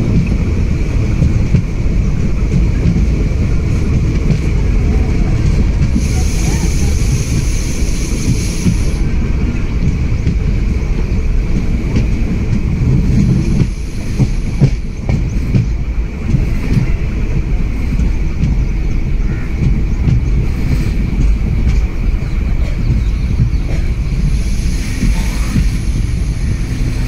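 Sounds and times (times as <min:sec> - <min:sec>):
train wheels rumbling on track: 0:00.0 - 0:27.0.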